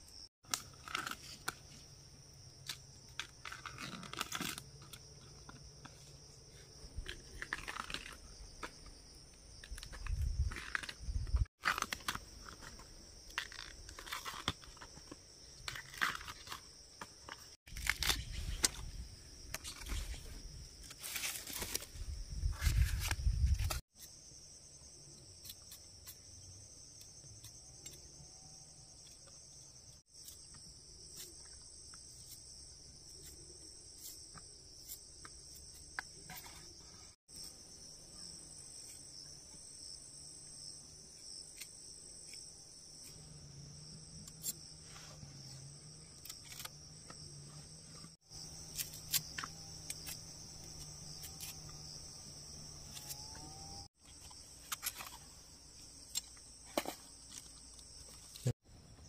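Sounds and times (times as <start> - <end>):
high-pitched insect chorus: 35.6 - 58.5.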